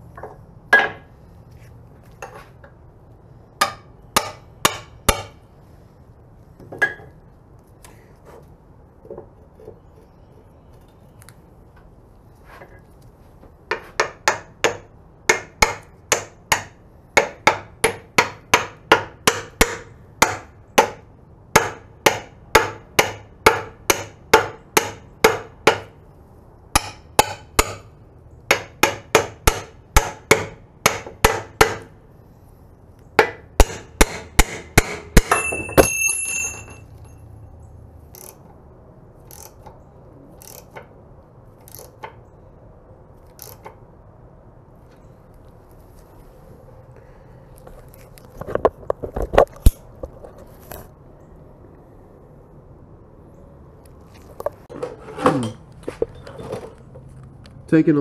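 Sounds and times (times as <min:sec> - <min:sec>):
hammer tapping on metal: 0:03.6 - 0:05.3, 0:13.7 - 0:25.9, 0:26.7 - 0:27.9, 0:28.5 - 0:31.9
high metallic ring: 0:35.2 - 0:37.5.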